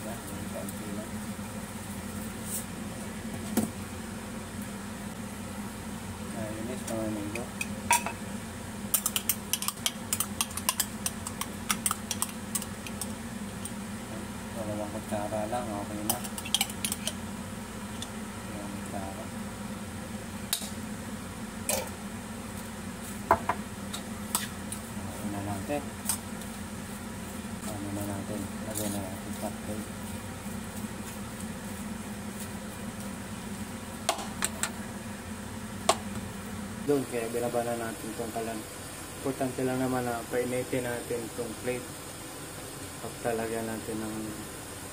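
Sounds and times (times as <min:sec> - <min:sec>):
steady low hum: 0:00.0 - 0:44.9
metal spoon stirring in bowl: 0:08.9 - 0:13.2, 0:16.0 - 0:17.2.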